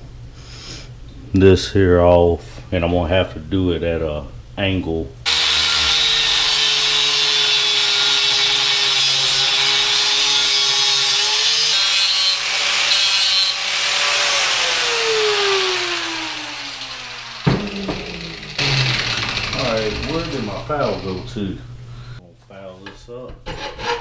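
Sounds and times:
angle grinder cutting steel: 5.3s - 21.5s.

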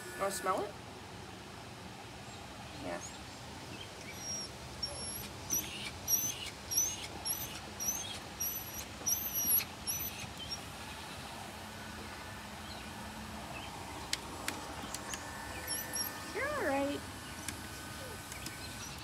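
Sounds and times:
puppy squeaking whimpers: 4.1s - 10.6s.

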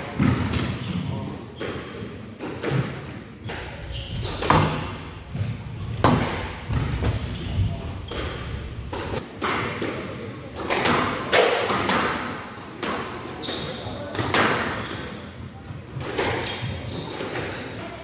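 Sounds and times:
squash ball smacks and thuds: 0.1s - 3.7s, 4.3s - 7.4s.

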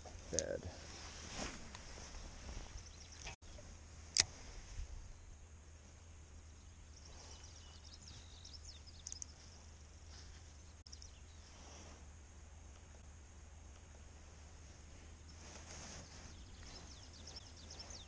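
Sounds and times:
low steady rumble: 0.0s - 18.0s
faint bird chirps: 6.4s - 12.0s, 15.0s - 18.0s.

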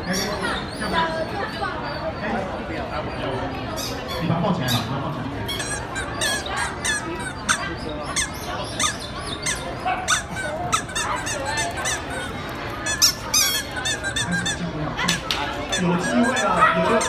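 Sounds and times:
crowd chatter: 0.0s - 17.0s
high-pitched squeaks and chirps: 3.2s - 14.7s, 15.6s - 17.0s.

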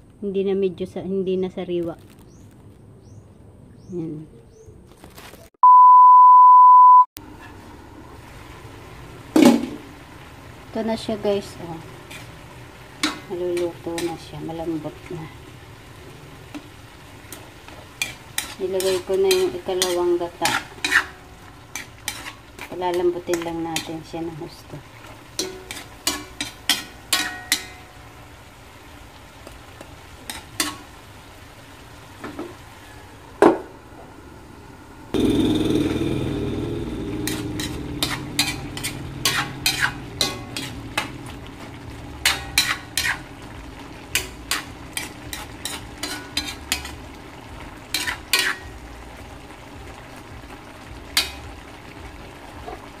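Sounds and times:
liquid sizzling in hot wok: 7.2s - 33.4s, 35.1s - 53.0s
metal spatula scraping a wok: 12.0s - 14.3s, 16.5s - 24.1s, 25.0s - 27.9s, 30.2s - 30.9s, 37.2s - 47.1s, 47.9s - 48.8s.

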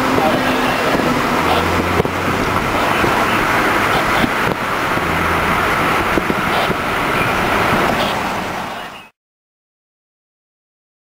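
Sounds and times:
low vehicle noise: 0.0s - 9.2s.

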